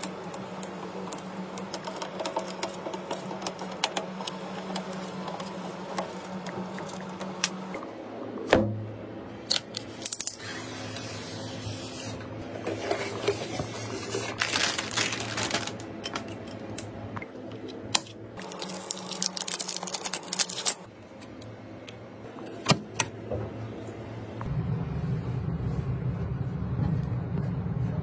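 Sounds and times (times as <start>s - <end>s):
packaging rustling and tearing: 13.1s - 15.9s, 18.4s - 20.9s.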